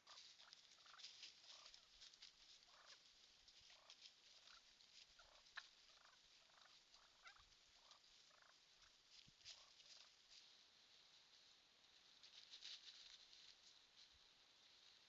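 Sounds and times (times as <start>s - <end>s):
wild turkeys calling: 0.0s - 10.4s.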